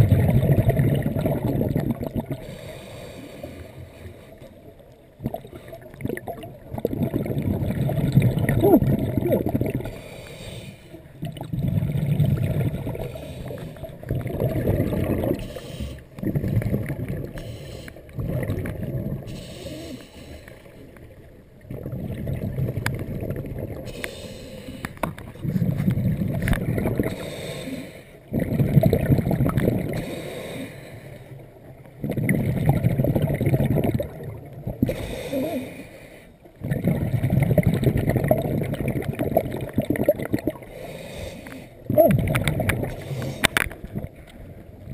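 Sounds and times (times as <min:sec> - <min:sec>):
underwater breath bubbling: 0:00.0 - 0:44.9
diver inhaling: 0:02.4 - 0:04.4, 0:09.9 - 0:11.0, 0:12.9 - 0:13.9, 0:15.3 - 0:16.2, 0:17.3 - 0:18.1, 0:19.2 - 0:20.9, 0:23.8 - 0:25.0, 0:27.0 - 0:28.2, 0:30.0 - 0:31.4, 0:34.8 - 0:36.4, 0:40.7 - 0:41.9, 0:42.9 - 0:43.7.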